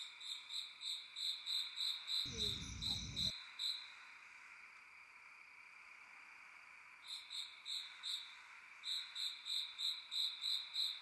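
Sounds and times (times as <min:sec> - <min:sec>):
insects humming: 0:02.3 - 0:03.3.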